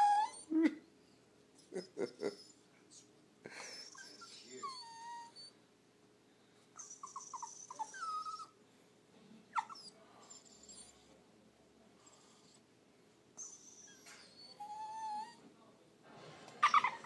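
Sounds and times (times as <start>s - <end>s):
dog whining and whimpering: 0.0s - 0.8s, 1.6s - 3.0s, 3.6s - 5.6s, 6.8s - 8.6s, 9.6s - 11.1s, 13.4s - 15.4s, 16.6s - 17.0s.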